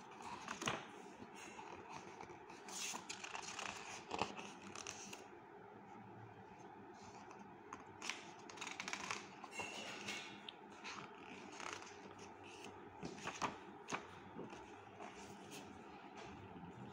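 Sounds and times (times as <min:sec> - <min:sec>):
book pages turning: 0:00.1 - 0:05.3, 0:07.0 - 0:09.5, 0:10.7 - 0:15.8.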